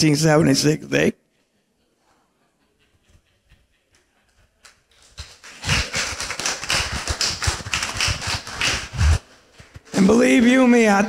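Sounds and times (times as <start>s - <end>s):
people applauding: 4.6s - 10.4s.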